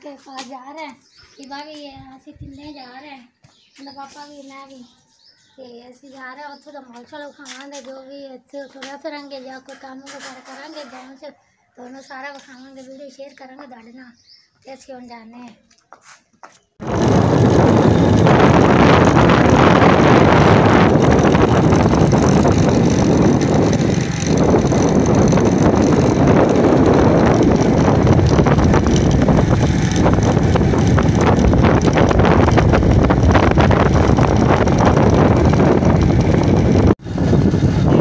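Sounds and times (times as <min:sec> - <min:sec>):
wind buffeting microphone: 0:01.1 - 0:03.0, 0:16.8 - 0:38.0
motorcycle running: 0:16.8 - 0:38.0.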